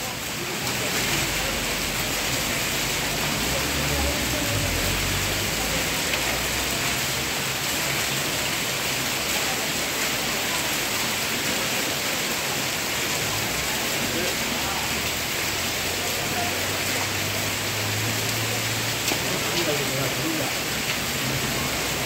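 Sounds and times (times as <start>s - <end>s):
heavy rain and hail: 0.0s - 22.0s.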